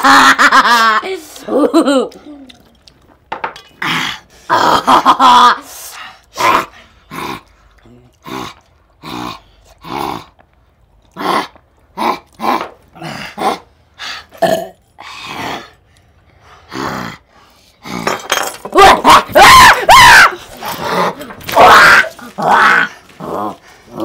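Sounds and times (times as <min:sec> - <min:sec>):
men grunting and growling: 0:03.8 - 0:05.6, 0:11.2 - 0:13.7, 0:16.7 - 0:24.0
excited shouting: 0:18.8 - 0:22.9.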